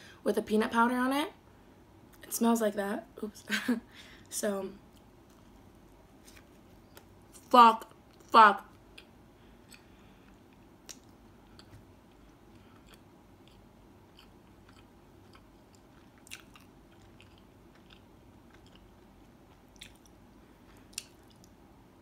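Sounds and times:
chewing bread: 10.8 - 21.6.

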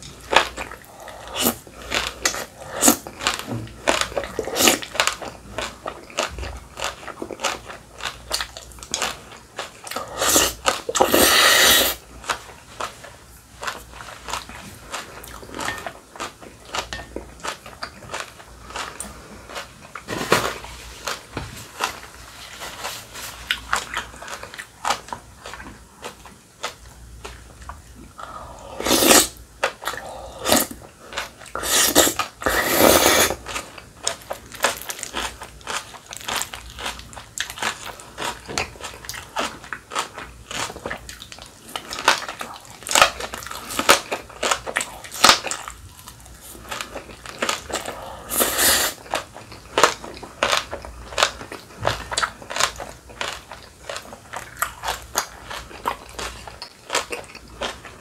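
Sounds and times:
noodle slurping: 10.1 - 12.0, 28.6 - 29.4, 31.6 - 33.4
crunching chews: 22.8 - 58.0.

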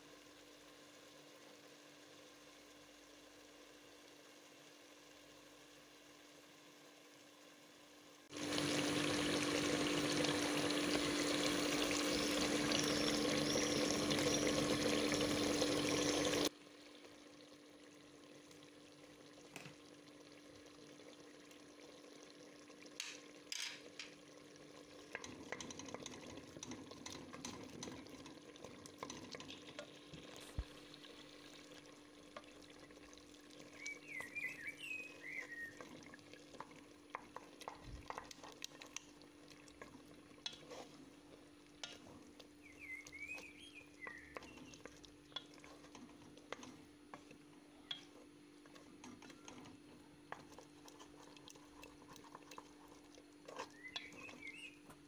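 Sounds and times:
chicken sizzling in a pot: 0.0 - 55.0
wooden spoon scraping and stirring: 25.0 - 30.6, 35.2 - 55.0
pot clicks: 44.0 - 49.7.

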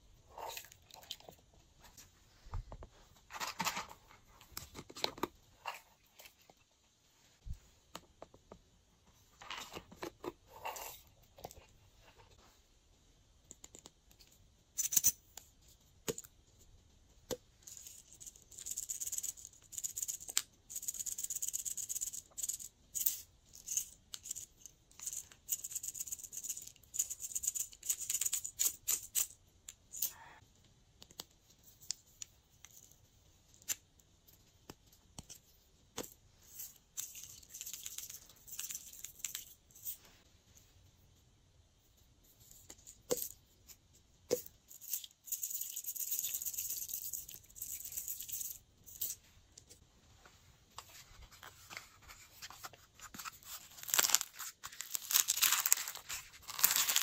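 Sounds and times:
sprinkles rattling in plastic tubes: 44.7 - 49.1, 53.6 - 57.0.

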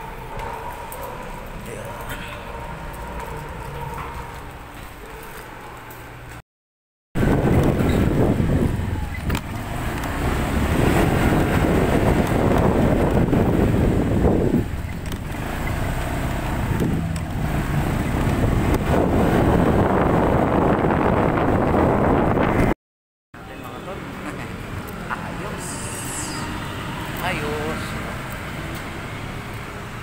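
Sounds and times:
road noise: 0.0 - 6.4, 7.2 - 22.8, 23.4 - 30.0
motorcycle engine: 7.2 - 22.3
wind rumble on microphone: 7.2 - 22.8.

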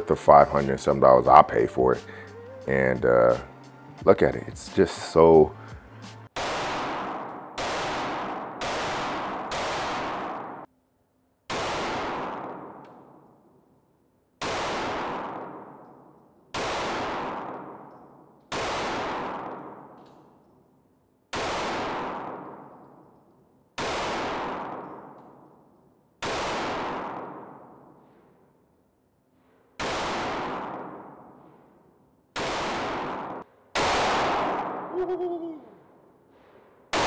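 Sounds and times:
pistol shots echoing indoors: 6.4 - 10.7, 11.4 - 34.9.

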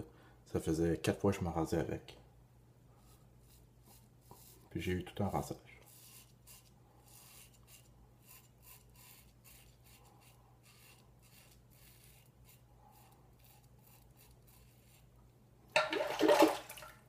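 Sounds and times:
razor scraping stubble: 2.9 - 15.3.

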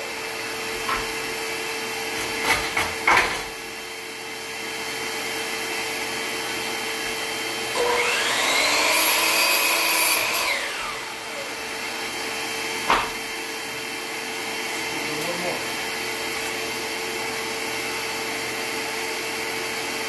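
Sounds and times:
saw blade cutting wood: 7.7 - 11.6
miter saw motor: 7.7 - 11.8.

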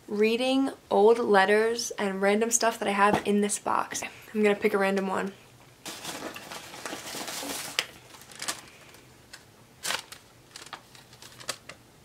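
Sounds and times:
paper rustling and crinkling: 5.8 - 11.8.

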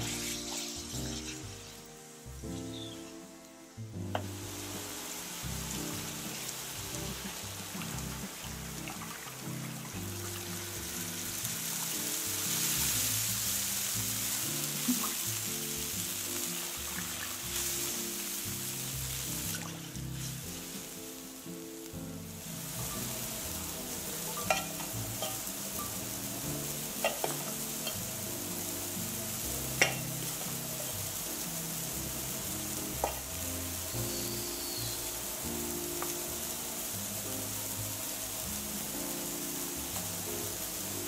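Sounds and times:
broth simmering with sizzling hiss: 0.0 - 41.0
soft background music: 0.0 - 41.0
metal ladle clinking against pan: 24.4 - 25.4.

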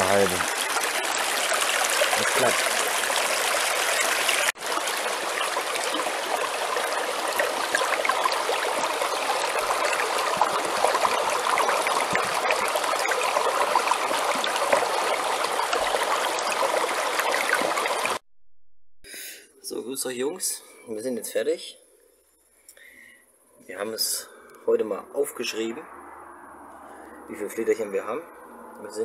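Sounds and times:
stream water rushing over rocks: 0.0 - 18.2.

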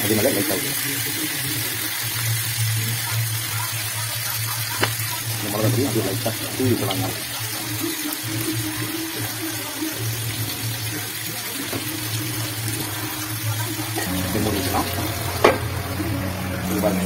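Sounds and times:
fish sizzling in oil: 0.0 - 17.0
sharp tap: 4.8 - 5.0.

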